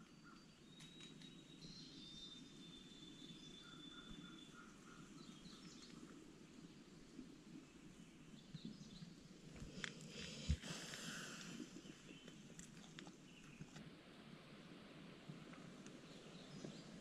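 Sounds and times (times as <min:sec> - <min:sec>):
distant bird chirps: 0:00.0 - 0:06.1
low outdoor background hush: 0:00.0 - 0:17.0.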